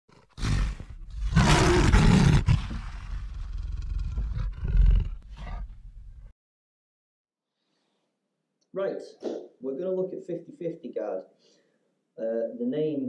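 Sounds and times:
loud rough roar: 0.4s - 5.2s.

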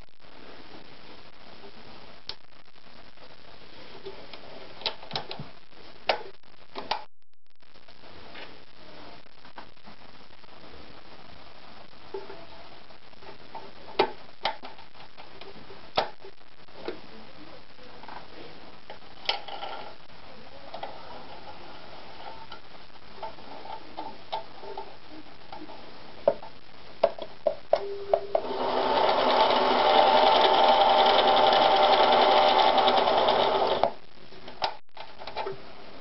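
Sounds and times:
sewing machine motor running: 28.4s - 33.9s.

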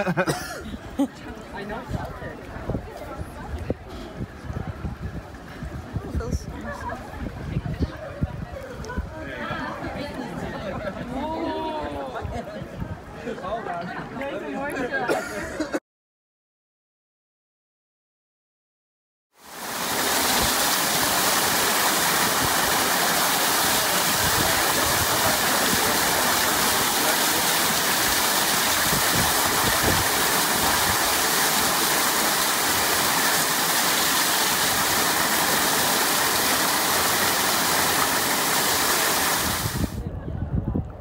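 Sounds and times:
waterfall rushing into pool: 19.4s - 40.0s.

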